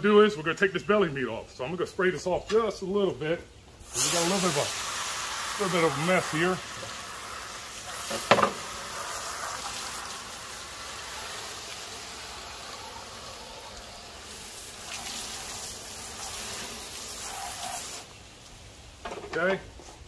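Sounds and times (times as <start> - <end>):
hose nozzle spraying water: 3.8 - 18.2.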